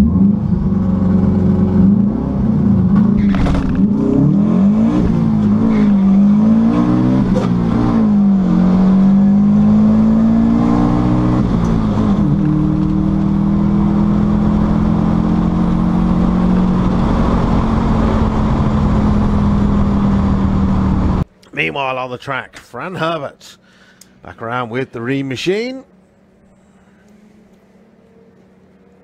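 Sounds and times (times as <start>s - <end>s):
car engine at full throttle: 0.0s - 21.3s.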